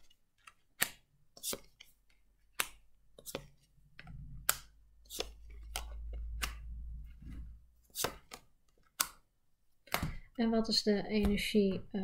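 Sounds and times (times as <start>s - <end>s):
cards snapping and slapping: 0.4s - 1.9s, 2.5s - 3.5s, 4.4s - 6.7s, 7.9s - 10.2s.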